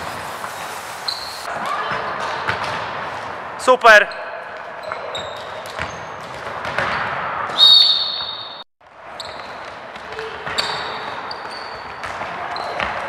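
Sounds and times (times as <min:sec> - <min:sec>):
sneaker squeaks: 0:00.5 - 0:02.6, 0:04.1 - 0:13.0
loud high squeal: 0:01.0 - 0:01.5.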